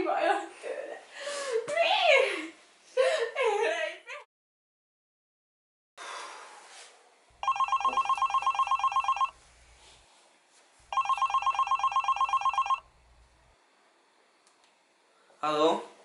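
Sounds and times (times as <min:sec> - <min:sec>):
phone ringtone trilling: 0:07.4 - 0:09.4, 0:10.9 - 0:12.8.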